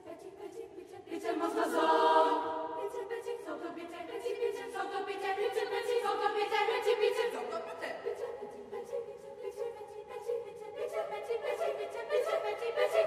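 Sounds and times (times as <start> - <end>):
girls' choir singing: 0.0 - 13.0.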